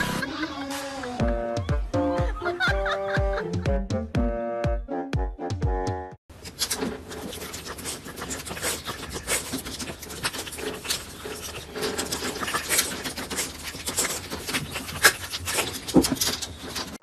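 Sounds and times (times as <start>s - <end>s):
dog licking and smacking: 6.5s - 16.7s.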